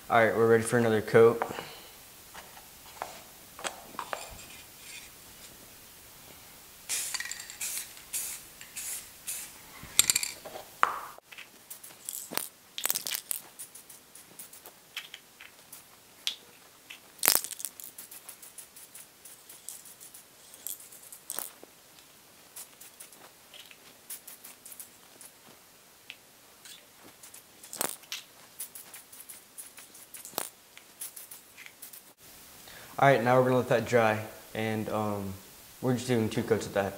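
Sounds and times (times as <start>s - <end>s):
aerosol spray hissing: 6.9s - 10.1s, 17.9s - 20.6s.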